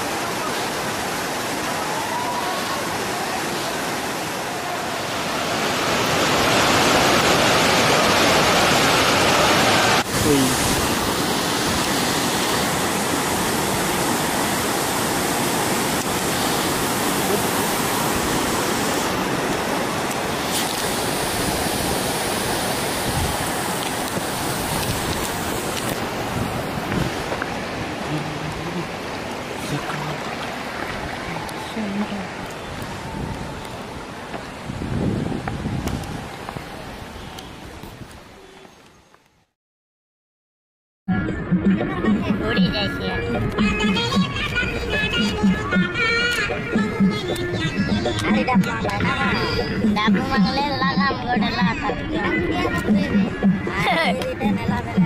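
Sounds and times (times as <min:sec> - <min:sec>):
waterfall rushing water: 0:00.0 - 0:38.4.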